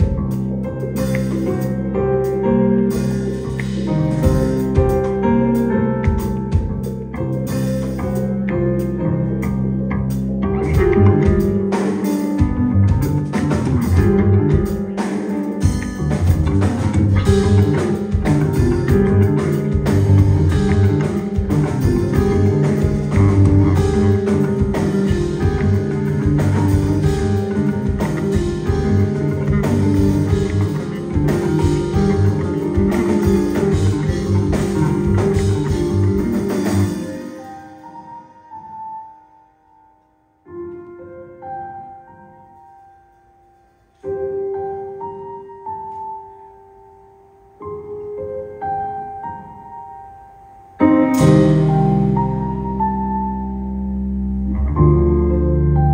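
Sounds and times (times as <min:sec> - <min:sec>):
bass guitar: 0:00.0 - 0:37.8, 0:50.8 - 0:55.9
electric guitar: 0:00.0 - 0:38.7, 0:50.8 - 0:55.9
drum kit: 0:00.0 - 0:38.9, 0:50.8 - 0:53.3.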